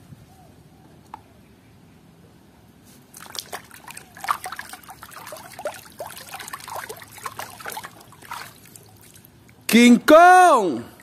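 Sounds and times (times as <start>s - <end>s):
water splashing in a plastic tub: 3.1s - 9.7s.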